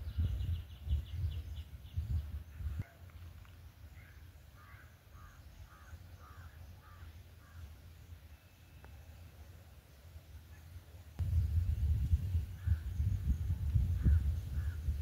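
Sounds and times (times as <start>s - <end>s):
wind buffeting microphone: 0.0s - 2.8s, 11.2s - 15.0s.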